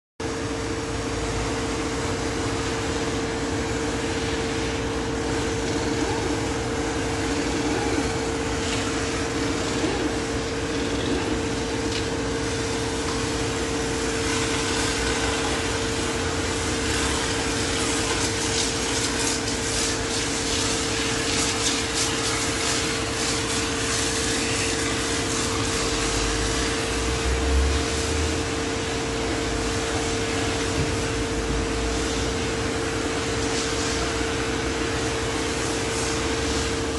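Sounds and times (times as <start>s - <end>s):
car wash machinery humming: 0.2s - 36.9s
hiss of water spraying: 12.4s - 31.1s, 31.8s - 34.3s.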